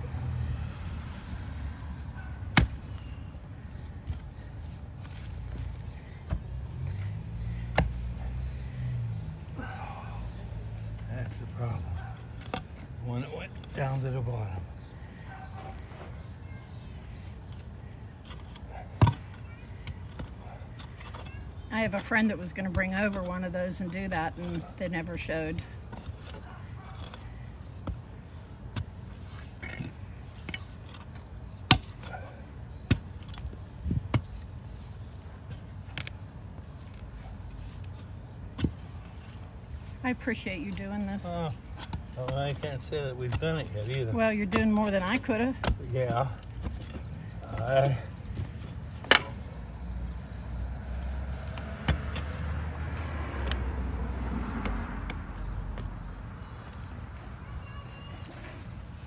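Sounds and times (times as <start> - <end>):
mattock chopping into soil: 2.5 - 3.1, 5.0 - 8.2.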